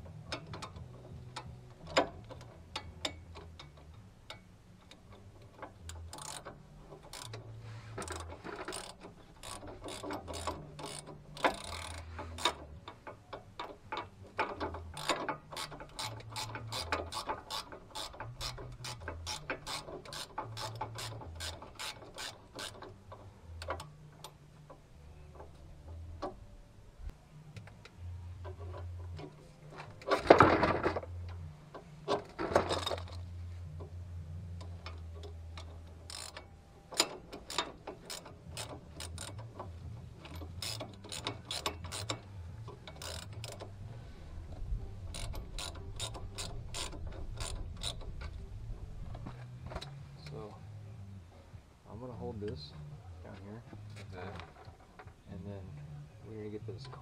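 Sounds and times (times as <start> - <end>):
metallic clatter: 0.0 - 26.5, 28.4 - 34.0
ratchet wrench clicking: 0.3 - 24.4, 34.6 - 43.8, 44.5 - 48.4.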